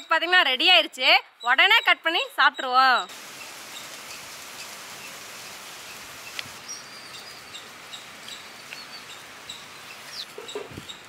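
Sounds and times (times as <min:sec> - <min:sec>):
small birds chirping: 0:01.3 - 0:11.0
background hiss: 0:03.1 - 0:11.0.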